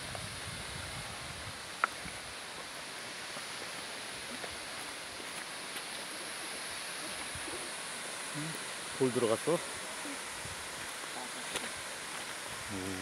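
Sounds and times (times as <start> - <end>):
waterfall rushing: 1.6 - 13.0.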